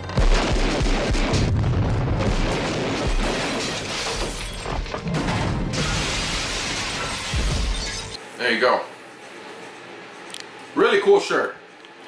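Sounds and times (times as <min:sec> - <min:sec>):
explosion boom and rumble: 0:00.1 - 0:07.8
crashing debris and glass: 0:01.2 - 0:08.2.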